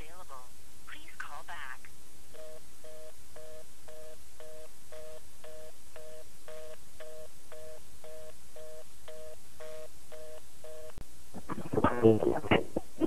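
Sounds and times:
faint low hum: 0.0 - 13.0
telephone busy signal beeping: 2.4 - 10.9.

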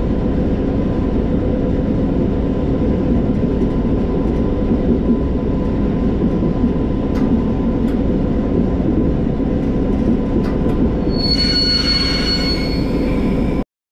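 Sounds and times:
diesel locomotive engine rumbling: 0.0 - 13.6
rail joint clicks: 3.1 - 13.6
high wheel squeal: 11.0 - 13.6.

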